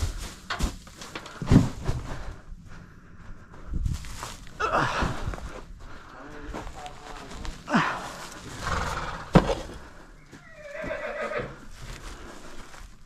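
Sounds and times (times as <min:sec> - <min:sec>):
rustling: 0:00.0 - 0:13.0
horse whinnying: 0:08.5 - 0:09.6, 0:10.3 - 0:11.6.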